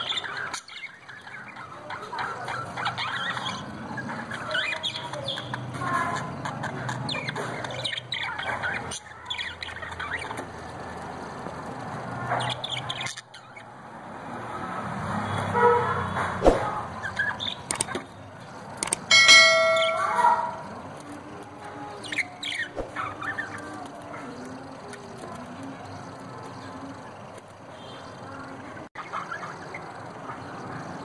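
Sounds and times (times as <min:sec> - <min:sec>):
budgerigars chirping: 0:00.0 - 0:11.0, 0:12.2 - 0:13.8, 0:16.6 - 0:18.2, 0:29.0 - 0:31.0
loud held bird tone: 0:00.0 - 0:11.4, 0:12.2 - 0:21.0, 0:21.7 - 0:31.0.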